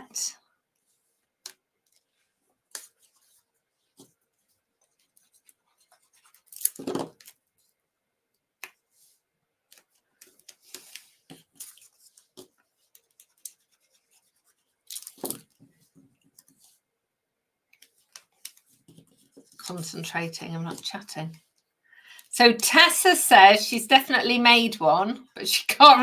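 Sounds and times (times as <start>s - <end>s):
paper rubbing and tapping: 0.8s - 7.8s, 8.6s - 16.8s, 17.7s - 19.9s
paper rustling: 8.8s - 16.8s, 17.7s - 19.9s.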